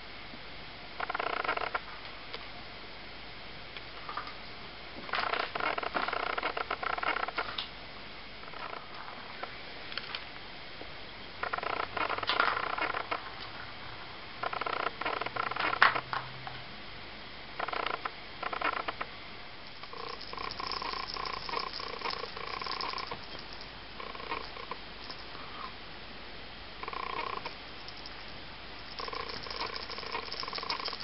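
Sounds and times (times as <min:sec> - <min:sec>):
plastic ball rattling round a track: 0:19.7 - 0:25.3, 0:26.8 - 0:31.0.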